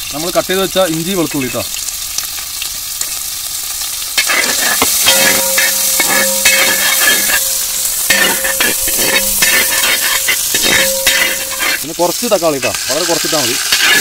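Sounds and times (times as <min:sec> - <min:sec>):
vegetables sizzling in hot oil: 0:00.0 - 0:14.0
metal spoon scraping pan: 0:04.2 - 0:11.9, 0:13.5 - 0:14.0.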